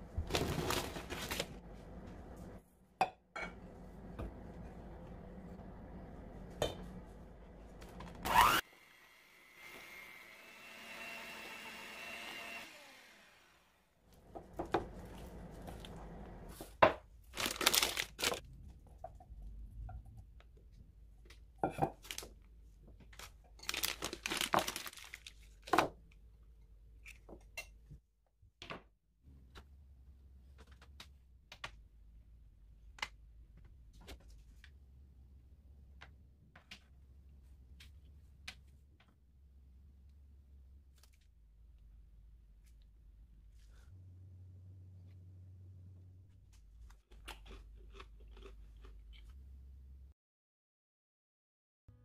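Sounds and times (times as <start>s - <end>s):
small motor whirring: 8.2s - 13.8s.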